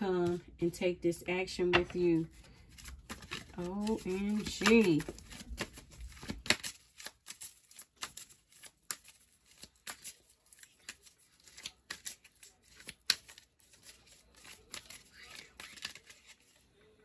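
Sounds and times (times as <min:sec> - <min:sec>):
cards being shuffled: 0:01.7 - 0:16.7.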